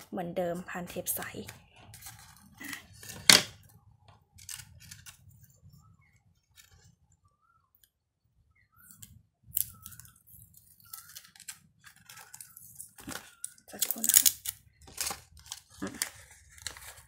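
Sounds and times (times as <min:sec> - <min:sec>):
paper rustling: 0:01.4 - 0:03.6, 0:04.4 - 0:05.5, 0:10.6 - 0:14.2, 0:14.8 - 0:17.0.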